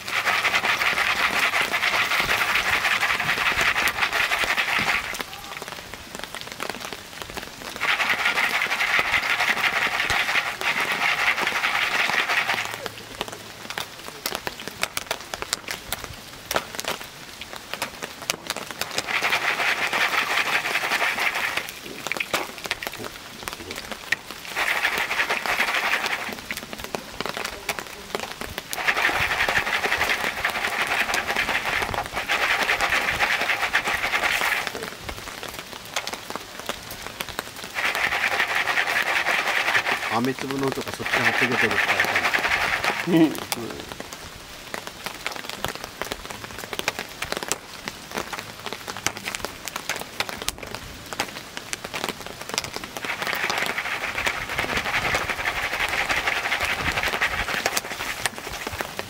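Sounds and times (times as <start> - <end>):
corn kernels rattling in pan: 0.0 - 5.5, 7.8 - 13.0, 18.6 - 22.9, 24.1 - 27.8, 28.6 - 35.1, 37.7 - 43.6, 52.6 - 59.0
sharp crackles: 0.0 - 43.7, 48.2 - 59.0.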